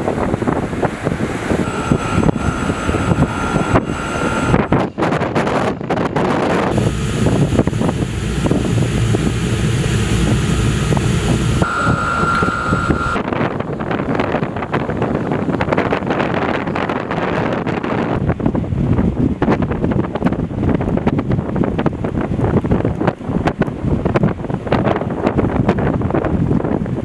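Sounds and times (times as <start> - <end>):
low rumble of engines: 0.0 - 27.0
wind on microphone: 0.0 - 27.0
steady high tone: 1.6 - 5.2, 6.7 - 13.5.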